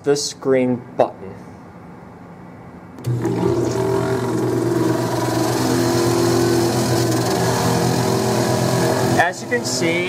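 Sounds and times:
saw machine hum: 3.0 - 10.0.

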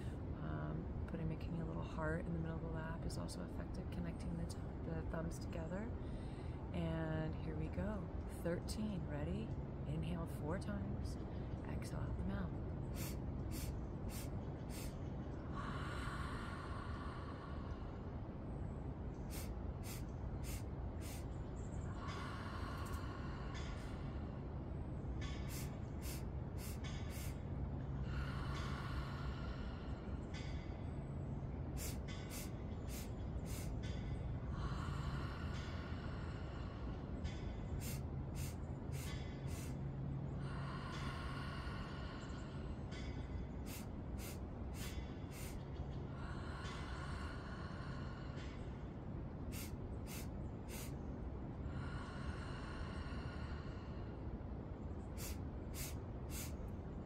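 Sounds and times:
low hum: 0.0 - 57.0
woman inhaling sharply: 13.0 - 14.9, 19.3 - 21.2, 25.3 - 27.4, 31.8 - 33.7, 37.8 - 39.7, 43.7 - 45.6, 49.5 - 50.9, 55.2 - 56.5.

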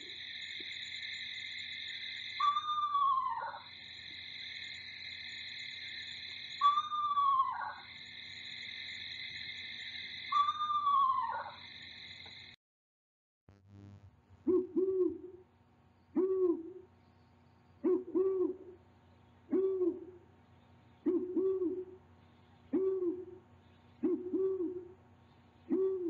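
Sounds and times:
owl hooting: 1.2 - 3.9, 6.5 - 8.8, 10.2 - 11.7, 14.5 - 15.4, 16.2 - 16.9, 17.8 - 18.8, 19.5 - 20.2, 21.0 - 22.0, 22.7 - 23.4, 24.0 - 25.0, 25.6 - 26.0.

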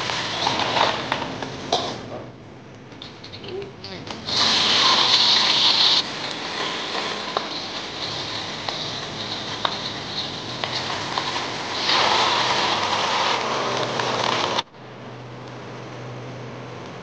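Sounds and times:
wok bubbling: 0.0 - 2.4, 3.0 - 17.0
liquid pouring and hissing: 4.2 - 14.7
sizzling in hot oil: 4.2 - 14.7.

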